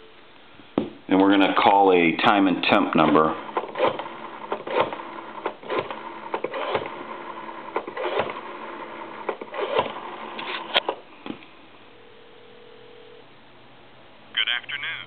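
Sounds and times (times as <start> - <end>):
rotary phone dial whirring: 3.0 - 11.0.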